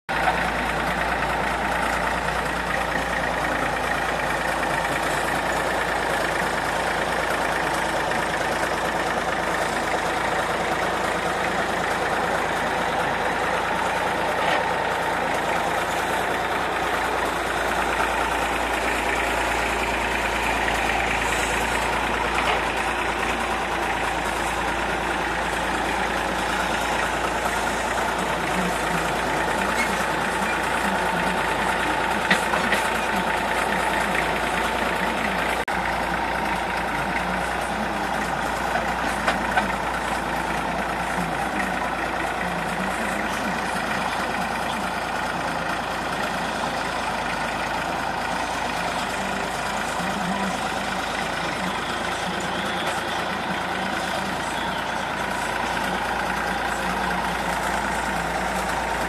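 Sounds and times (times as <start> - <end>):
diesel tractor engine running: 0.0 - 59.0.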